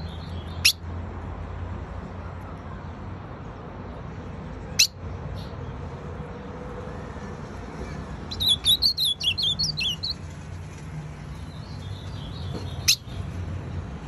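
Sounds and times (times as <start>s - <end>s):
bird call notes: 8.3s - 10.2s.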